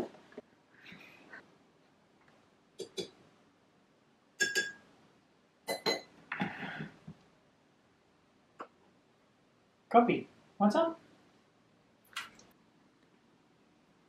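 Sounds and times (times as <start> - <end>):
mugs and teaspoon clinking: 4.4 - 4.8.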